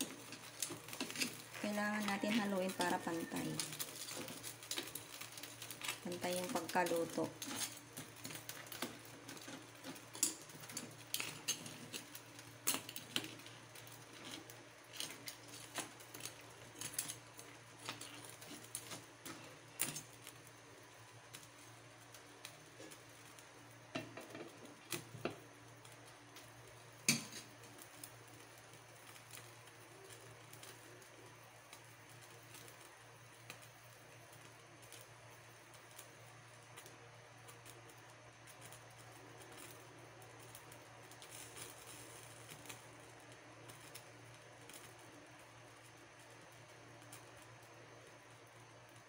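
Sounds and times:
spatula scraping and knocking on pan: 23.9 - 24.6.

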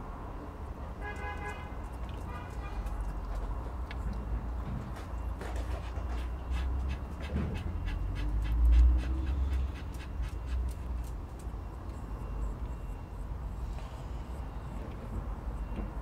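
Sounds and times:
dog panting fast: 5.7 - 11.0.

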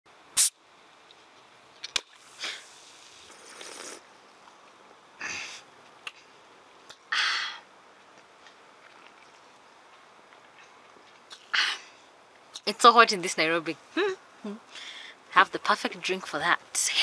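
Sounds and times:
fizzing hiss: 2.1 - 4.0
person sipping: 2.3 - 4.1.

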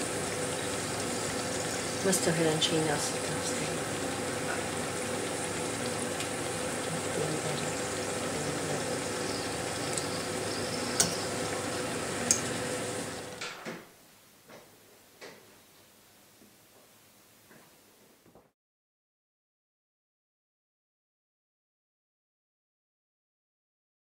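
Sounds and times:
food sizzling in hot fat: 0.0 - 13.4.

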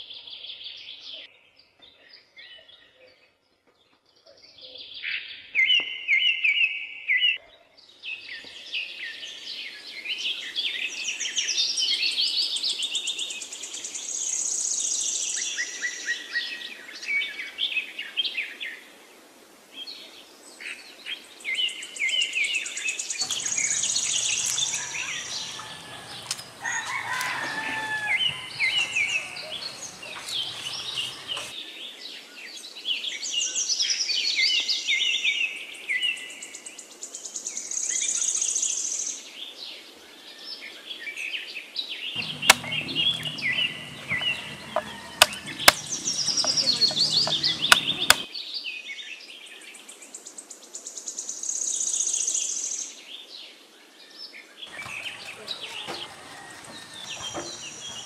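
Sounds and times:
birds chirping and trilling: 23.1 - 31.6, 42.2 - 48.3, 54.6 - 58.0
sharp clicks and knocks: 23.2 - 31.5, 42.2 - 48.2, 54.7 - 58.0.

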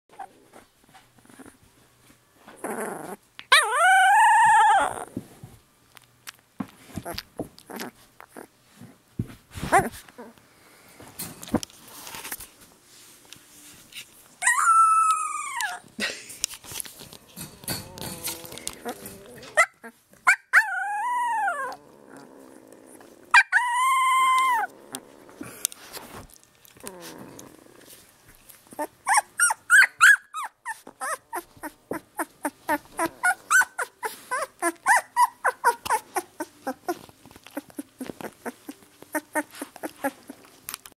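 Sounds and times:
puppy wailing: 2.6 - 5.1, 14.4 - 15.9, 17.6 - 25.6, 26.8 - 28.0, 28.7 - 40.6
puppy whimpering: 2.6 - 5.1, 6.9 - 8.5, 9.6 - 10.4, 14.4 - 15.9, 17.4 - 25.6, 26.8 - 28.0, 28.7 - 40.6.

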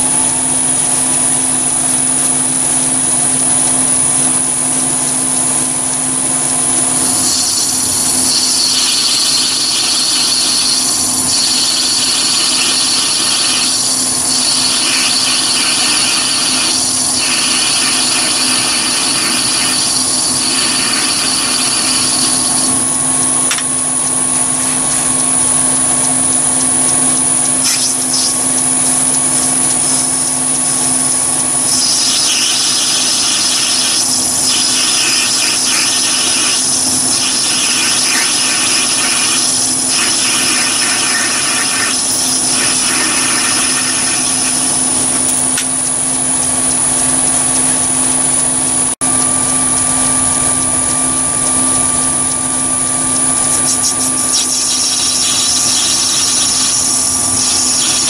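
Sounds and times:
lathe motor whine: 0.0 - 58.0
cutting tool hissing on metal: 7.0 - 23.7, 27.3 - 30.4, 31.5 - 45.6, 53.4 - 58.0.

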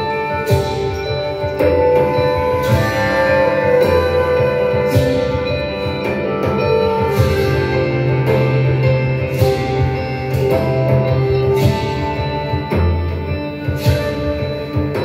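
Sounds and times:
instrumental music with strong bass: 0.0 - 15.0.

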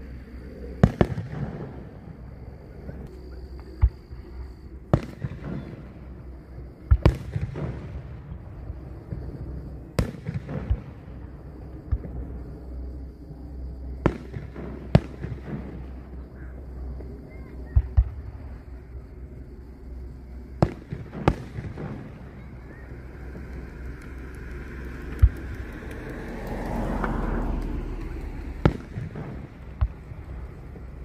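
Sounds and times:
low background rumble: 0.0 - 31.0
distant firework booms: 0.8 - 2.2, 4.9 - 6.2, 6.8 - 12.5, 17.7 - 18.8, 20.6 - 23.5, 28.4 - 31.0.

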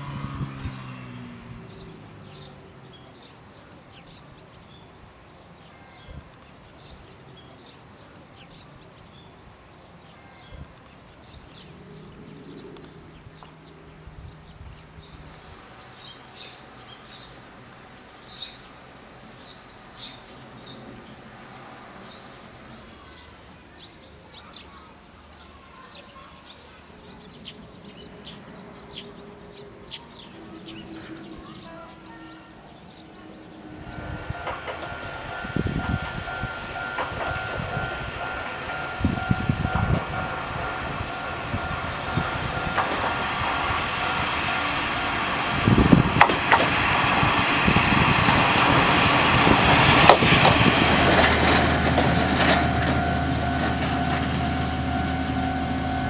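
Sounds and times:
small birds chirping: 0.4 - 35.1.

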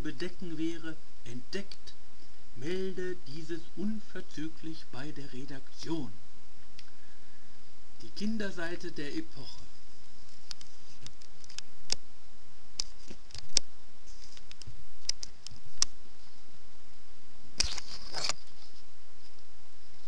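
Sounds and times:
book pages rustling: 10.1 - 11.6, 12.8 - 15.7, 17.6 - 19.4.

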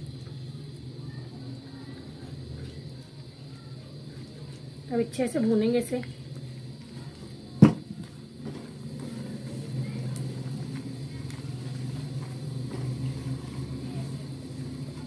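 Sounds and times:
steady low hum: 0.0 - 15.0
spatula scraping in wok: 8.4 - 15.0.

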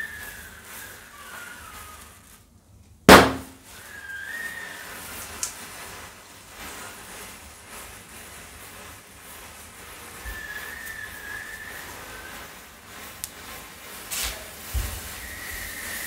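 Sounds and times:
loud firecracker bang: 3.1 - 3.6
short whistled call: 3.2 - 5.1, 10.2 - 12.5.

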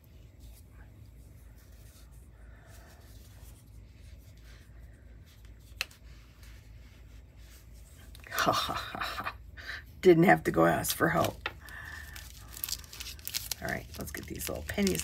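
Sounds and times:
soft rustling: 0.0 - 8.3
faint low hum: 0.0 - 15.0.

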